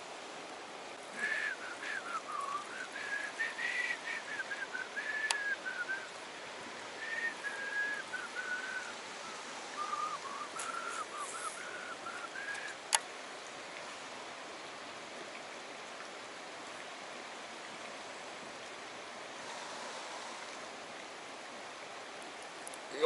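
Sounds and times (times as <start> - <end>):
outdoor hiss: 0.0 - 23.0
person whistling a tune: 1.2 - 6.1, 7.0 - 8.9, 9.8 - 12.8.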